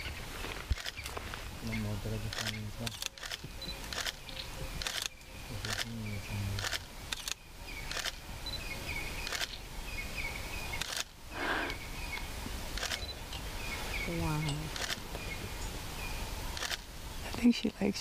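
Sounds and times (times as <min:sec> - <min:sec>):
camera shutter clicks: 0:02.3 - 0:05.9, 0:06.6 - 0:08.2, 0:09.2 - 0:09.6, 0:10.8 - 0:11.1, 0:12.7 - 0:13.2, 0:16.6 - 0:16.9.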